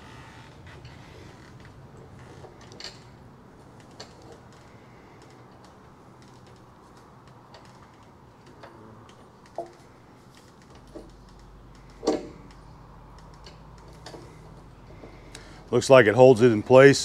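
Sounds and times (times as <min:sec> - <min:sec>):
light clicks and knocks of hardware: 0:03.8 - 0:15.5.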